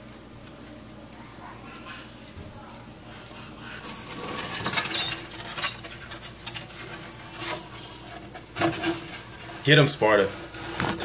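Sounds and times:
scratching on a wooden shelf: 0:03.8 - 0:11.0
mouse squeaking: 0:04.6 - 0:05.3.

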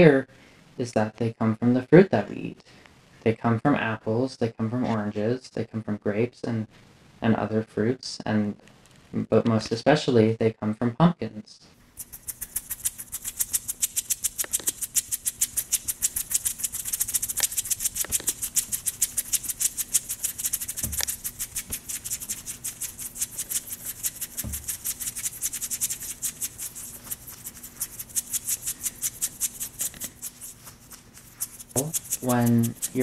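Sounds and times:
shaker-like rattle: 0:11.9 - 0:33.0.

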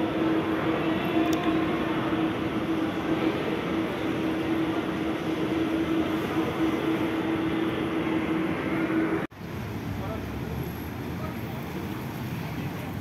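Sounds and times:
steady hum: 0:00.0 - 0:10.2
mall background noise: 0:00.0 - 0:13.0.

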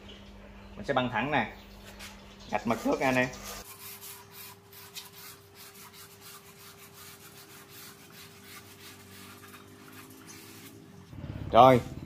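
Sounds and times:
faint steady hum: 0:00.0 - 0:03.6
marking tool scratching wood: 0:02.8 - 0:10.8.

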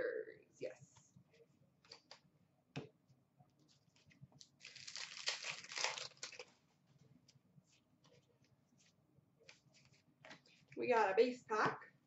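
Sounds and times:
wrapper crinkling and tearing: 0:04.6 - 0:06.5.

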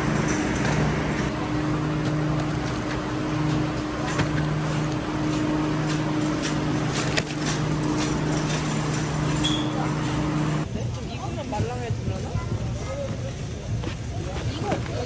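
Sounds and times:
refrigeration fans droning: 0:00.0 - 0:15.0
shopping cart rattling: 0:05.2 - 0:10.5.

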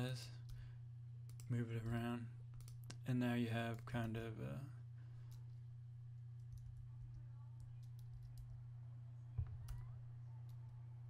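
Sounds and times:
steady low hum: 0:00.0 - 0:11.0
computer mouse clicks: 0:01.3 - 0:03.0, 0:06.4 - 0:08.6.

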